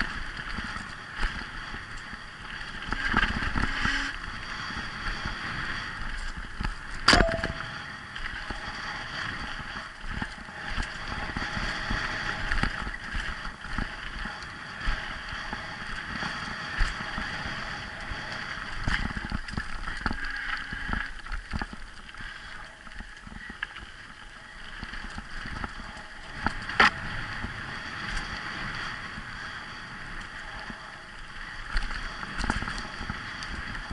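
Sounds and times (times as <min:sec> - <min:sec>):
bike rattling over bumps: 0:00.0 - 0:33.9
wind on microphone: 0:24.8 - 0:33.9.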